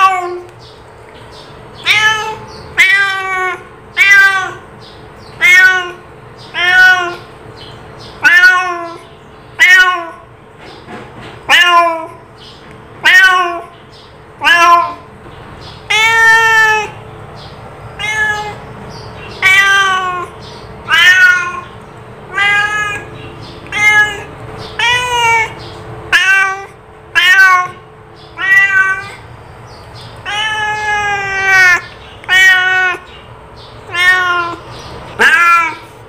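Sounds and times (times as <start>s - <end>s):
cat meowing: 0.0s - 0.5s, 1.8s - 4.7s, 5.3s - 7.3s, 8.2s - 10.3s, 11.4s - 12.2s, 13.0s - 13.8s, 14.4s - 15.1s, 15.7s - 17.0s, 17.9s - 29.3s, 30.1s - 33.2s, 33.8s - 36.0s.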